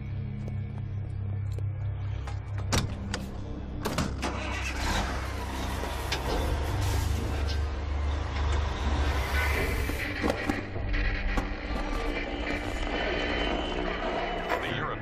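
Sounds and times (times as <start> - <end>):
diesel truck engine starting: 4.0 - 10.4.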